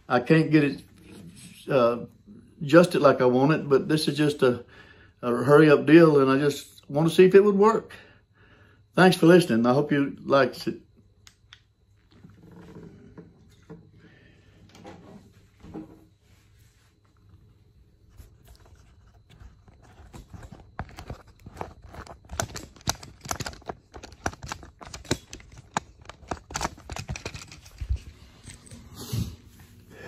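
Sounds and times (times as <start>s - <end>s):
handling noise clicks and rustles: 18.1s - 29.3s.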